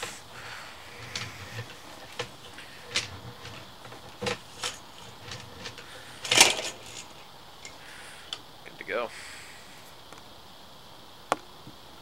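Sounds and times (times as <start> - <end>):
cable clicks and knocks: 0.9 - 7.8.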